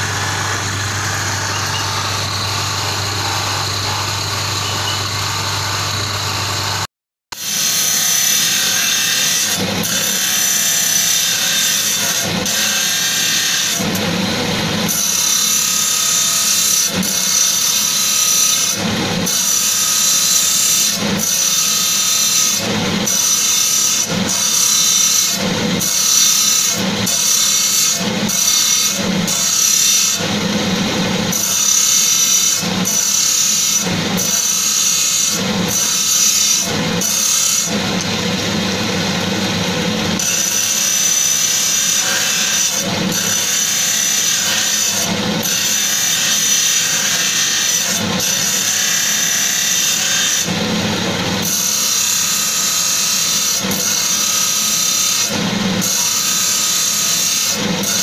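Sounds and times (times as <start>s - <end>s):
stone grinding on wheel: 0.0s - 6.0s
polishing wheel whining: 0.0s - 7.6s.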